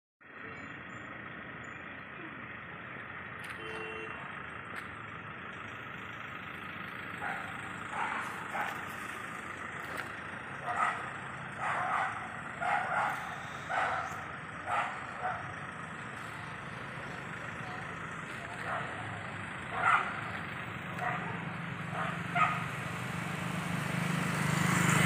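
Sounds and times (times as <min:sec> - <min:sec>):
city road hum at night: 0:00.2 - 0:25.0.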